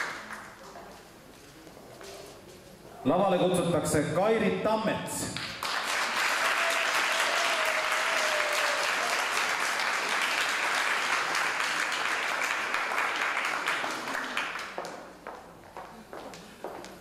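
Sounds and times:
audience applauding: 0.0 - 0.5, 5.4 - 15.2.

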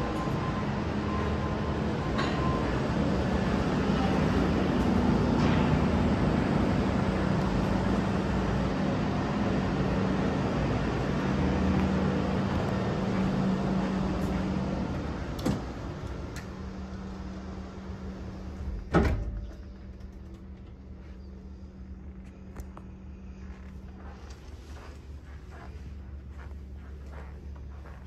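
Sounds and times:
outdoor noise with low hum: 0.0 - 28.0
sliding door thump shut: 18.8 - 19.5.

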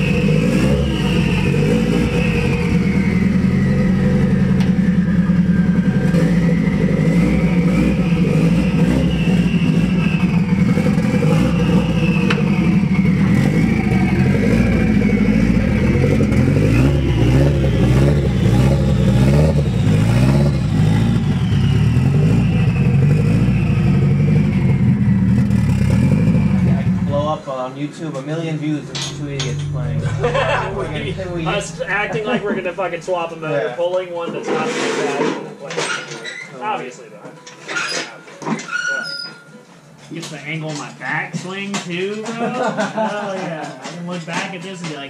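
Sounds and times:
car engine running: 0.0 - 27.4, 28.6 - 33.6.

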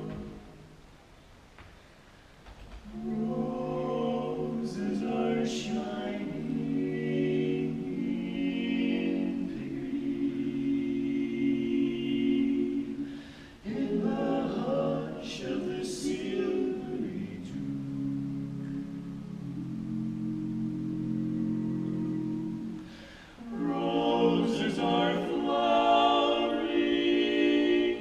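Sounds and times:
male quartet singing a cappella: 0.0 - 0.5, 2.8 - 28.0.

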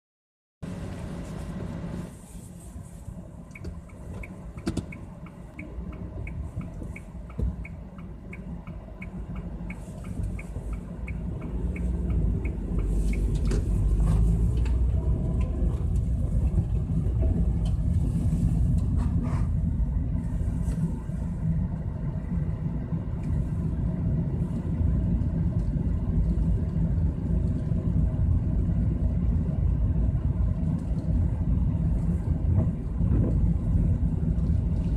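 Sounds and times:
car engine and tyre rumble: 0.6 - 34.9
light regular ticking: 3.5 - 13.4.

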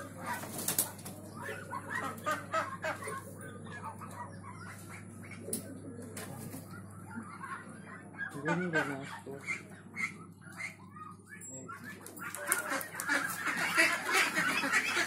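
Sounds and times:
ducks and chickens calling: 0.0 - 15.0.

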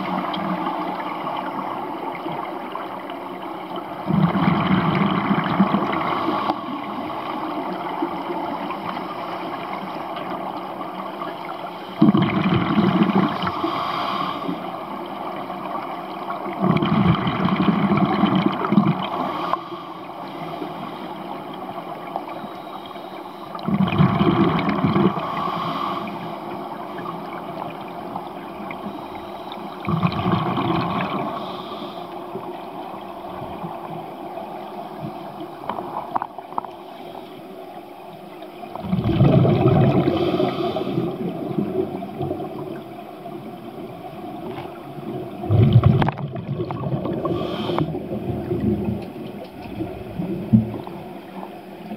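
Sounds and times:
underwater bubbles burbling: 0.0 - 13.8, 14.8 - 19.7, 23.5 - 29.0, 29.6 - 31.7, 38.3 - 51.9
steady hiss of water: 0.0 - 51.9.

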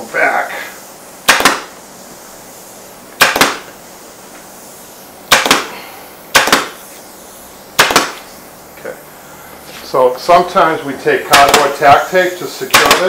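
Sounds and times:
pneumatic staple gun firing: 1.2 - 1.8, 3.2 - 3.8, 5.3 - 6.8, 7.8 - 8.3, 11.3 - 11.8, 12.7 - 13.0.

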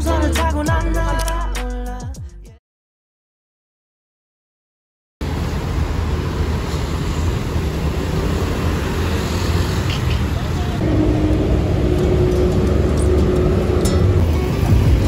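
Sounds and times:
road traffic rumble: 5.2 - 15.0.

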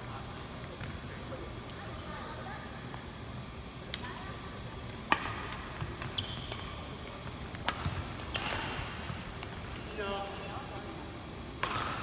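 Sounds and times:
rackets striking shuttlecock: 4.9 - 9.5, 11.6 - 12.0.

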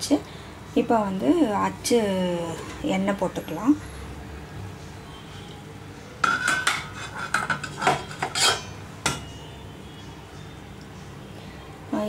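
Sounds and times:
steel utensils clinking: 6.2 - 9.4.

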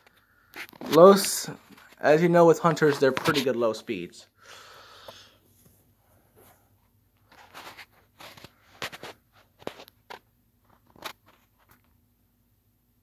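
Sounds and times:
crackling and rustling: 5.5 - 12.0.

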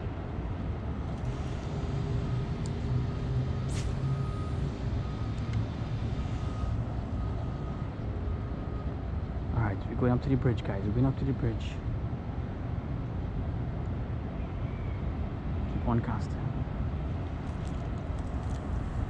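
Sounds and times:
vehicle engine rumble: 0.0 - 14.4, 16.6 - 19.0
sharp hiss: 3.7 - 4.2.

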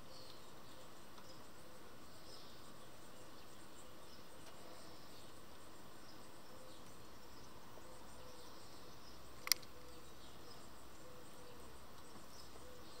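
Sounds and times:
faint outdoor hiss: 0.0 - 13.0
sharp click: 9.4 - 9.7.

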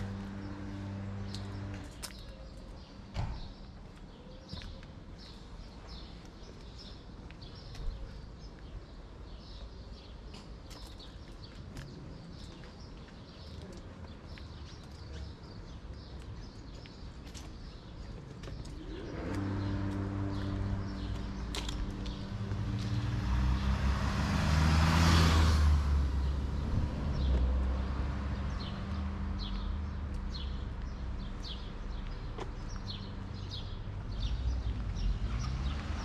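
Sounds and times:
vehicle engine: 0.0 - 2.2, 18.7 - 31.5, 32.2 - 36.0
small birds chirping: 0.0 - 23.9, 26.0 - 36.0
low street hum: 0.0 - 36.0.

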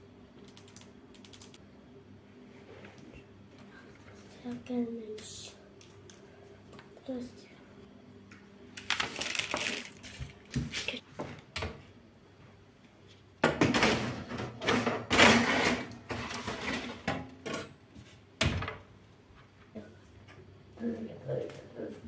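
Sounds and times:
metal baking tray scraping: 14.6 - 17.1.

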